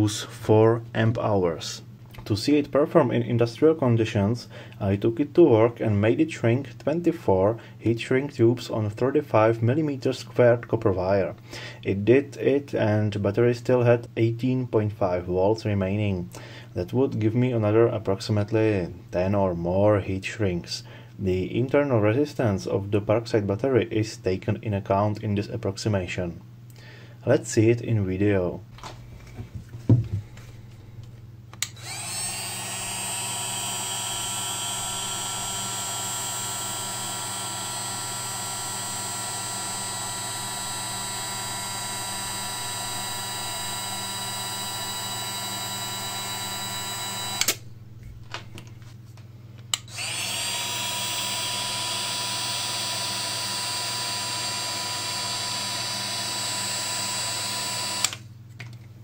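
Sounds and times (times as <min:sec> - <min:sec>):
hot air gun fan whine: 0:31.6 - 0:47.8, 0:49.7 - 0:58.3.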